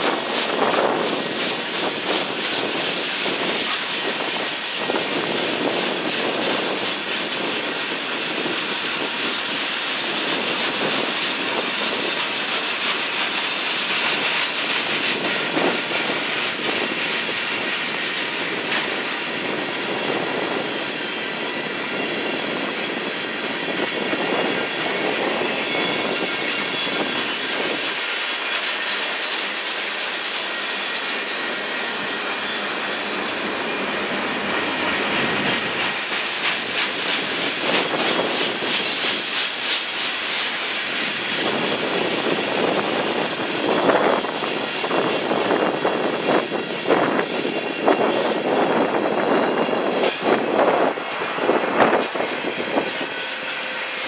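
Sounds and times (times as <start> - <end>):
freight train rumbling past: 0.0 - 54.0
wheels clacking over rail joints: 0.0 - 54.0.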